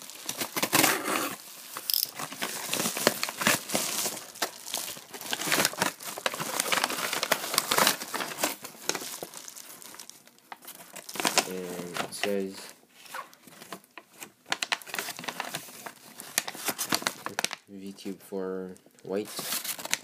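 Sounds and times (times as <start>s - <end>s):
bubble mailer crinkling and rustling: 0.0s - 17.6s, 19.2s - 20.0s.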